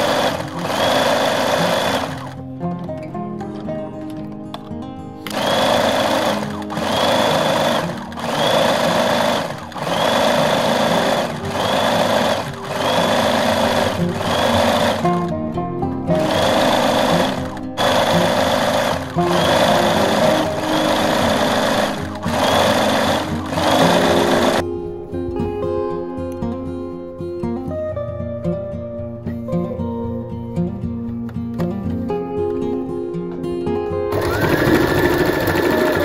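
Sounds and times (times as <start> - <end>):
sewing machine stitching: 0.0 - 2.5, 5.3 - 15.4, 16.1 - 24.6, 34.1 - 36.0
background music: 0.0 - 36.0.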